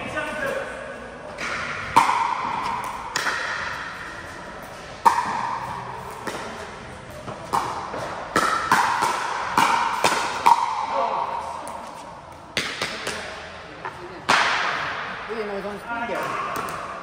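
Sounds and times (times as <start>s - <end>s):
paddles hitting pickleball: 1.4s - 4.1s, 4.9s - 13.3s, 14.3s - 15.0s.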